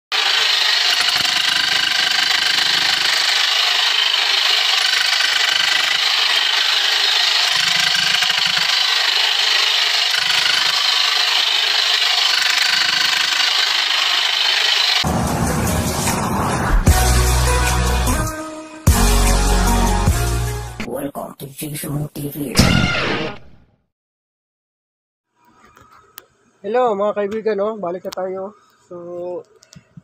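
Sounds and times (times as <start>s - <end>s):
hammer drill boring into rock: 0.1s - 15.1s.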